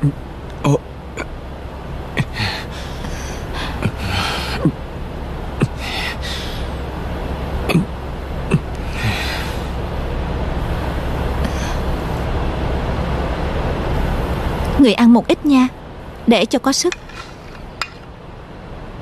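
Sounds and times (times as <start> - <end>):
steady low hum: 0.0 - 19.0
person gasping for breath: 2.2 - 4.7.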